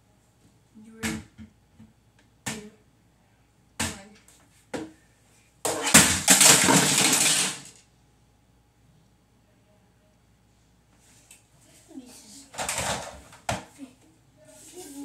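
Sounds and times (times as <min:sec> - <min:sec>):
plastic pieces clattering: 0:05.7 - 0:07.8.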